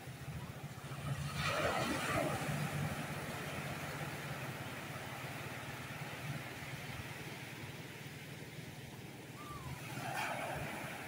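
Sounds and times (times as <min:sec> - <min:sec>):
wave wash rushing: 0:00.0 - 0:08.0, 0:09.2 - 0:11.0
waves breaking on beach: 0:00.0 - 0:11.0.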